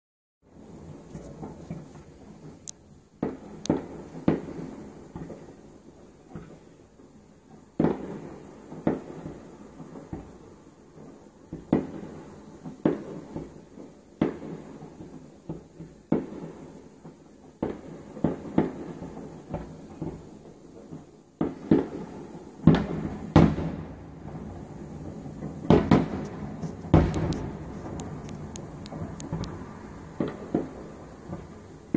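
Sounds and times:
firework shells bursting: 0.6 - 5.6, 11.5 - 31.9.

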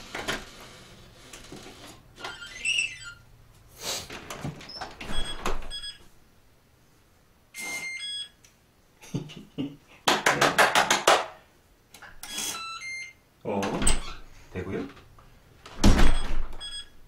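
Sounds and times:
electronic keypad beeps: 12.3 - 13.2, 16.2 - 16.9.

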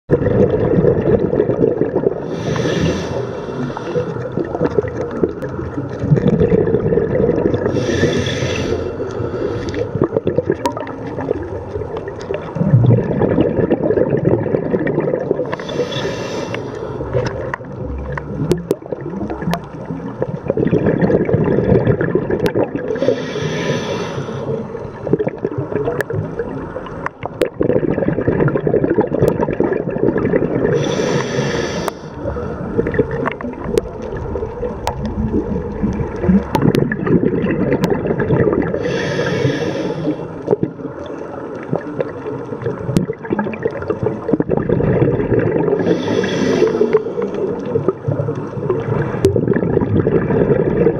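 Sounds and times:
bubbling gurgle of exhaled air: 0.1 - 50.9
scuba regulator inhale hiss: 2.2 - 4.3, 7.7 - 10.0, 15.5 - 17.0, 22.9 - 24.7, 30.7 - 32.7, 38.8 - 40.4, 45.8 - 47.5.

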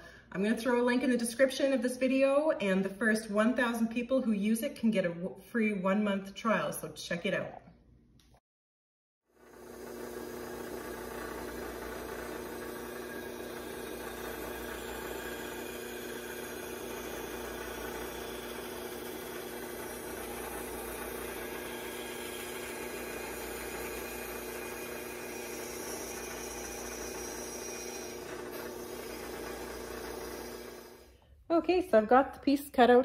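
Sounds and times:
bandsaw cutting wood: 9.4 - 31.1.

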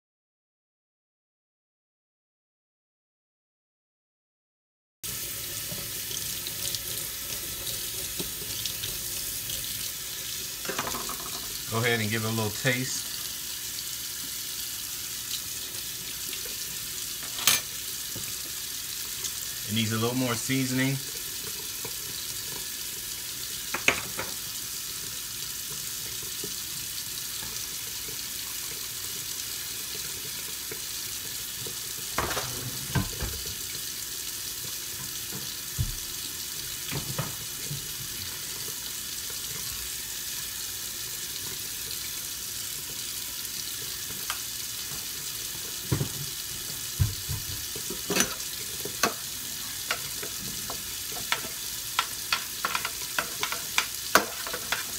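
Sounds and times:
food sizzling in a pan: 5.0 - 54.9
spoon scraping a pan: 47.8 - 54.9.

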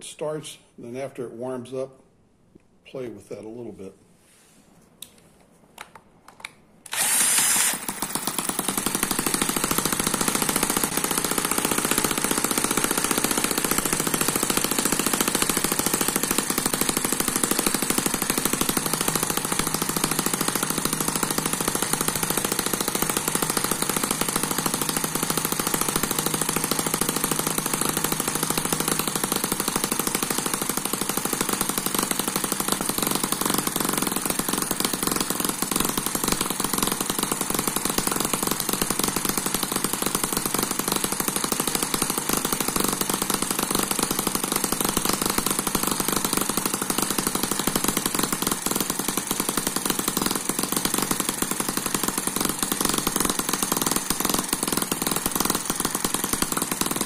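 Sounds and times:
cordless drill spinning: 6.8 - 57.0
small engine running rapidly: 6.9 - 57.0.

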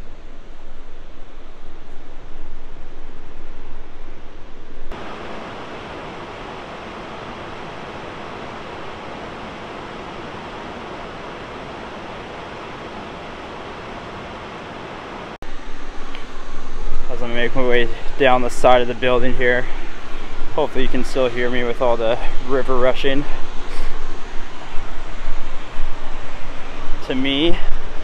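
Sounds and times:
river water rushing over rocks: 5.0 - 15.4.

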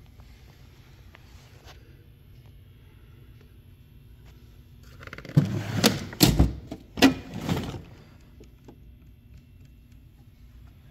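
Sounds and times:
toolbox drawers sliding: 5.2 - 8.0.

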